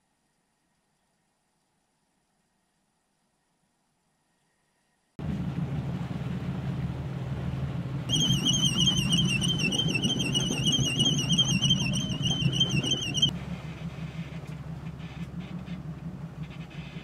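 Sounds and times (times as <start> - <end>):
boat engine running: 5.2 - 17.0
line hauler warbling whine: 8.1 - 17.0.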